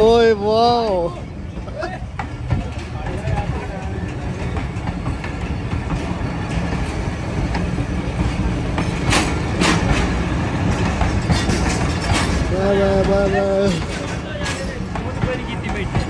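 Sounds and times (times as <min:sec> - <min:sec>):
train wheels rumbling on rails: 0:00.0 - 0:16.0
sharp clacks: 0:08.8 - 0:16.0.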